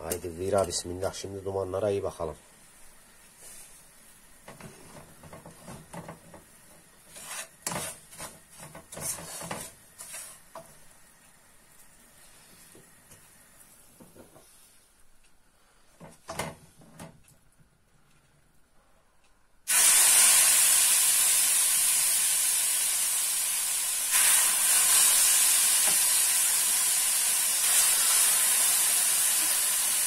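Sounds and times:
wooden spoon scraping metal pan: 7.1s - 10.6s.

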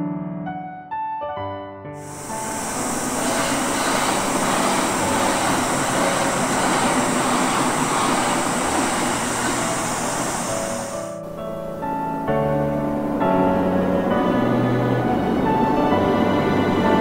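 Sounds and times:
soft piano music: 0.0s - 17.0s
high hiss: 2.0s - 13.7s
train rumble: 2.0s - 17.0s.

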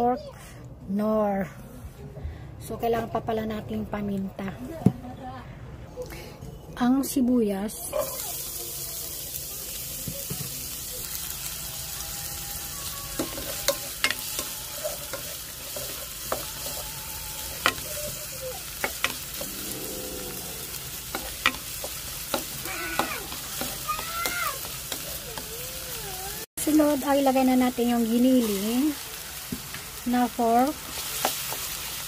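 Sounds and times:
onions sizzling in hot oil: 7.8s - 32.0s.

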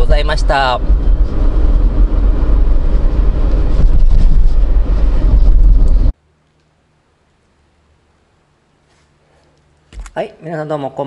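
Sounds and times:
road and engine rumble in cabin: 0.0s - 6.2s.

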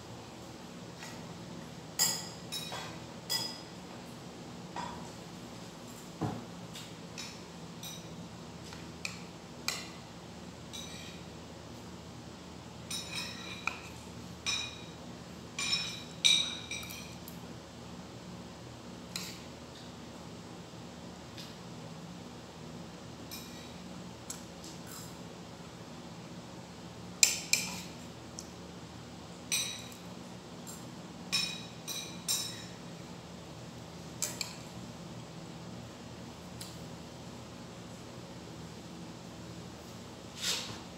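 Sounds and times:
metal spoon clinking on plate: 2.0s - 3.7s, 12.9s - 14.9s, 15.6s - 17.2s, 29.5s - 30.0s, 31.3s - 32.8s.

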